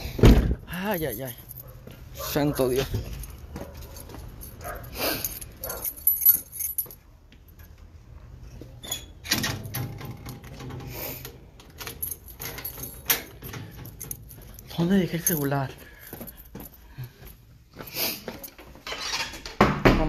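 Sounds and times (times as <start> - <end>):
footsteps on concrete: 1.3 - 7.6, 14.2 - 18.8.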